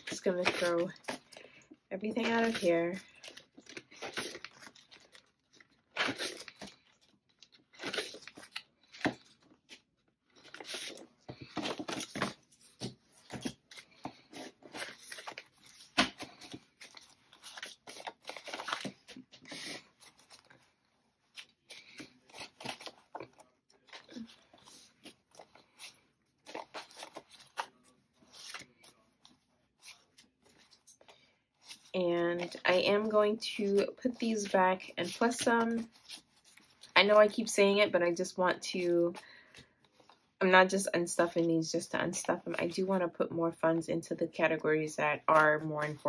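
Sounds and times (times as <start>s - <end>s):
paper rustling: 2.1s - 36.9s.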